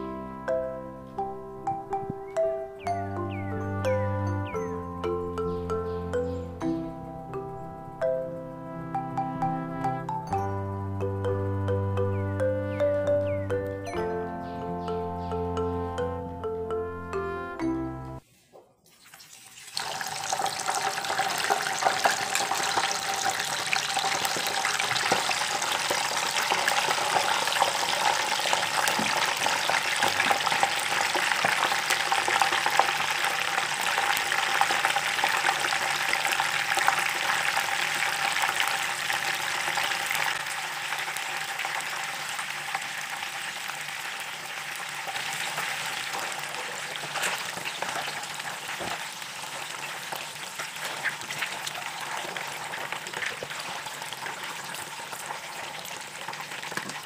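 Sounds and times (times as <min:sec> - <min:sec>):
eggs sizzling in hot oil: 0:18.9 - 0:57.0.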